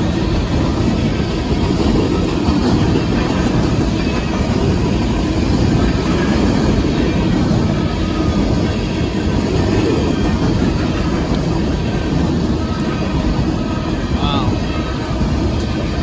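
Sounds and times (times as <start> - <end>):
freight cars rolling on rails: 0.0 - 16.0.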